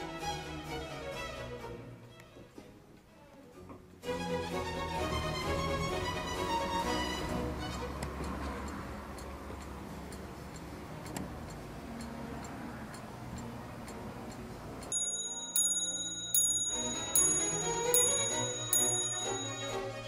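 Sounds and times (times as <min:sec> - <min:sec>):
clock ticking: 0:05.5 - 0:20.0
clock striking bell: 0:14.9 - 0:20.0.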